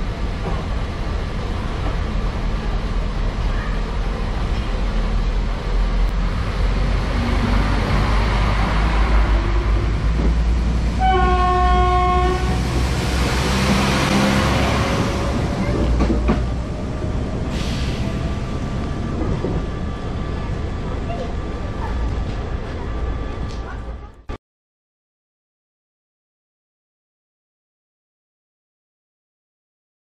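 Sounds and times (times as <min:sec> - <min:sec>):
diesel train engines running: 0:00.0 - 0:24.3
train wheel noise: 0:00.0 - 0:24.3
train horn blast: 0:11.0 - 0:12.8.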